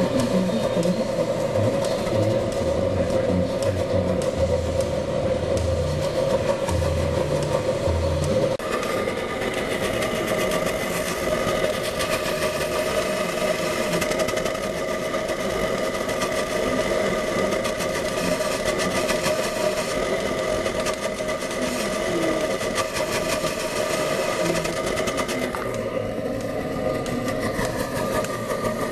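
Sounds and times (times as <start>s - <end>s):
held tones: 0.0s - 28.9s
burner flame rushing: 3.5s - 28.9s
fine rapid crackle: 8.6s - 28.9s.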